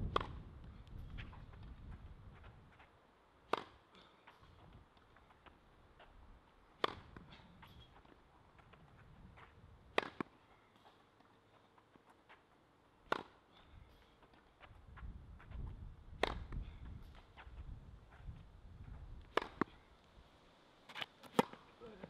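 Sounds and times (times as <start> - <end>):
tennis ball struck by racket: 0.0 - 10.9, 13.0 - 14.4, 15.4 - 18.2, 19.2 - 19.8, 20.9 - 21.6.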